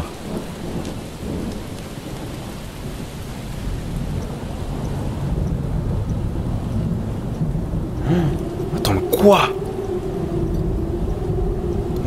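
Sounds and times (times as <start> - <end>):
steady rain: 0.0 - 12.0
thunder rumbling: 0.0 - 12.0.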